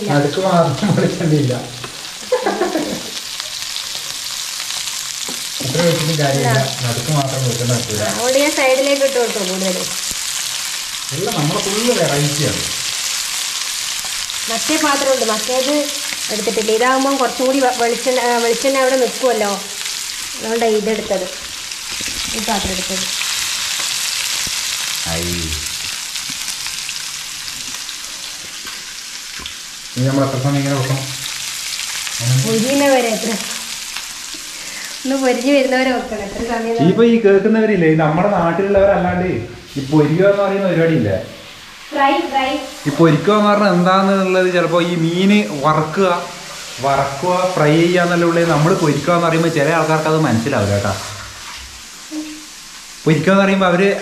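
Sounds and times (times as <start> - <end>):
fish sizzling in oil: 0.0 - 37.5, 38.5 - 54.0
person speaking: 5.6 - 9.8, 25.0 - 25.7.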